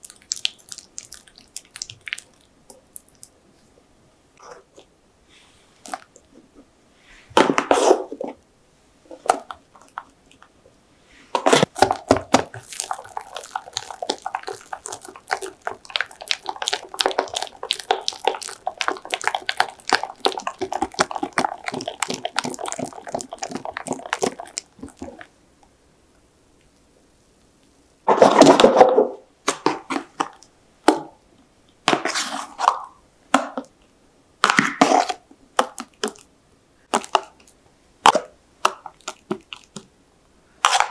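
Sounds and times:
wet scraping: 11.4 - 25.3.

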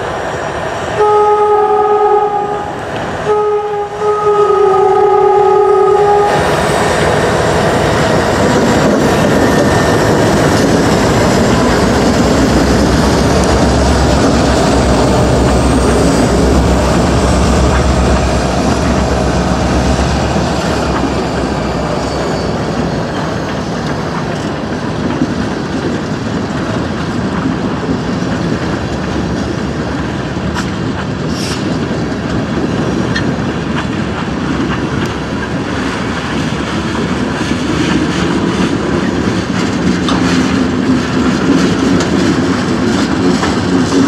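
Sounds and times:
train wheels clicking over rail joints: 6.0 - 44.0
high wheel squeal: 20.0 - 24.4.

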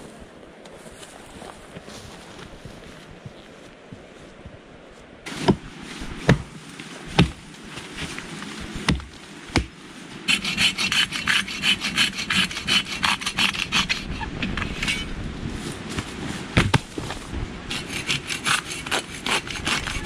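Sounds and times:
hatchet chopping wood: 7.2 - 7.4, 8.9 - 9.7, 16.6 - 16.9
hand saw cutting log: 10.3 - 15.1, 17.7 - 20.0.

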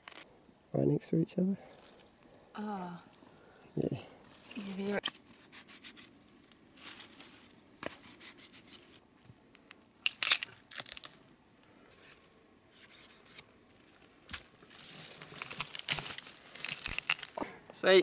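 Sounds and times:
rustling of ferns and leaves: 1.6 - 9.3, 10.0 - 17.4
crunch: 9.6 - 11.3, 13.8 - 17.4.

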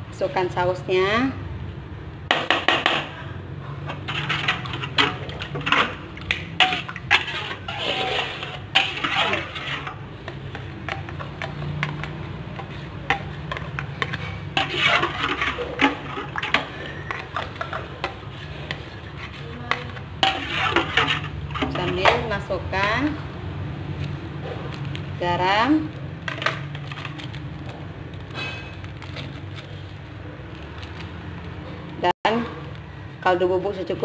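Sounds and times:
metal spoon scraping a wok: 2.8 - 22.6.

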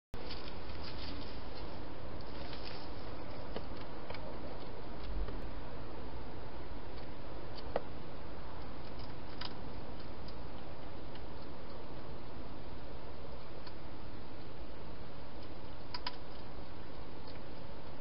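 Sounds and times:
hedgehog eating from a bowl: 14.4 - 18.0.

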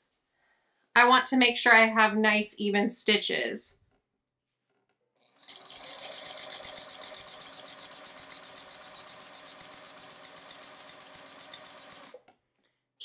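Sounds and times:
sewing machine stitching: 5.2 - 12.3.

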